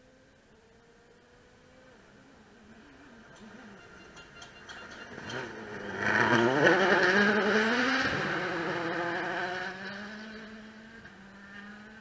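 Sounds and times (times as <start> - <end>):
car engine accelerating hard: 5.1 - 12.0.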